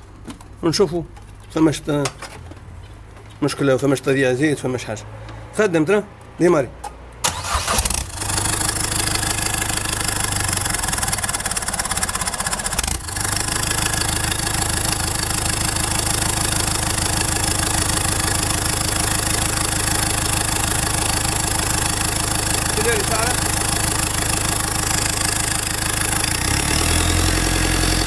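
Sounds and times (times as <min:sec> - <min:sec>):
diesel engine starting and idling: 0:07.2 - 0:28.0.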